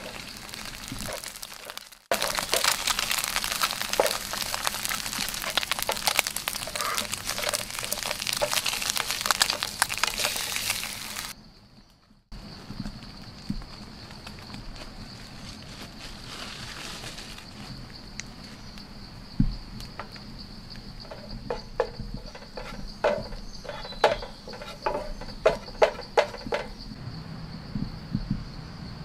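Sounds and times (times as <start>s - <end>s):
spatula scraping frying pan: 0.0s - 11.3s, 21.0s - 26.8s
insects droning: 0.0s - 29.0s
low thump: 19.4s - 19.7s, 27.7s - 28.6s.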